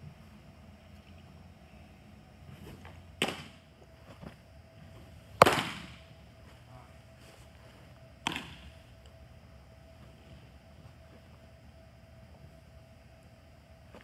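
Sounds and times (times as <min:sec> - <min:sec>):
baseball smacking into leather glove: 0:05.4 - 0:06.0.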